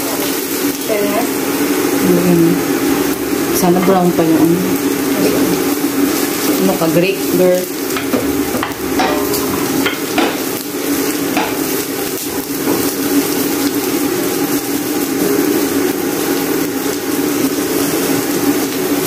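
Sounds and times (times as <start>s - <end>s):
onion sizzling in oil: 0.0s - 19.0s
spatula knocking pan: 7.8s - 13.0s.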